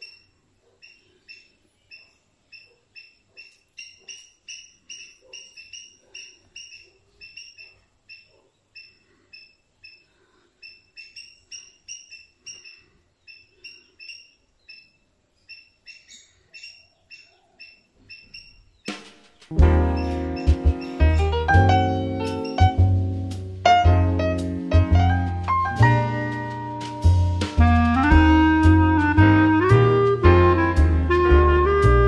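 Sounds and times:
small bird chirping: 0:00.0 - 0:24.4.

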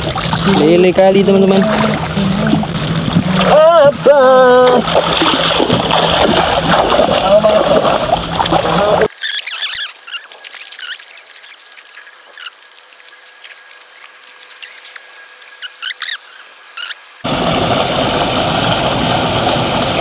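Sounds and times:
creek water rushing: 0:00.0 - 0:09.1, 0:17.2 - 0:20.0
small birds chirping: 0:09.2 - 0:11.4, 0:14.0 - 0:17.0.

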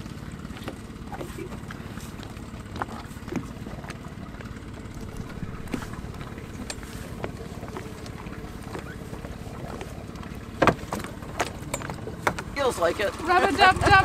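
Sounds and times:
boat engine idling: 0:00.0 - 0:14.0
knocks and clicks of gear: 0:04.4 - 0:12.6.

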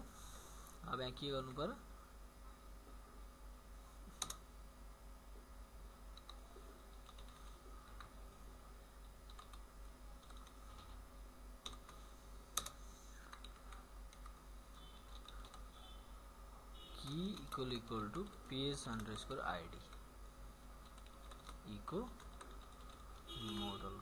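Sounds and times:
low steady hum: 0:00.0 - 0:24.0
keyboard typing: 0:04.2 - 0:04.4, 0:06.1 - 0:08.2, 0:09.0 - 0:11.0, 0:11.6 - 0:15.7, 0:17.0 - 0:20.0, 0:20.8 - 0:24.0.

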